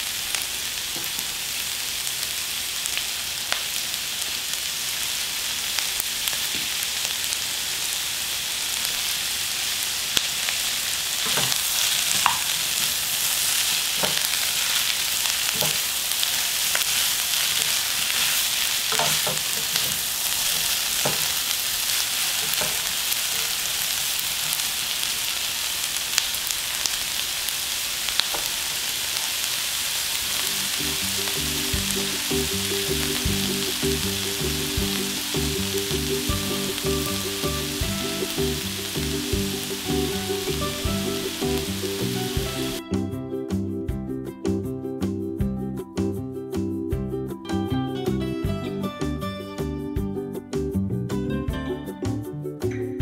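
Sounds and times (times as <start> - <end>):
vegetables sizzling in a wok: 0.0 - 42.8
utensils knocking against pan: 11.3 - 12.5, 14.0 - 14.3, 15.5 - 15.9, 18.9 - 21.4, 22.4 - 22.9.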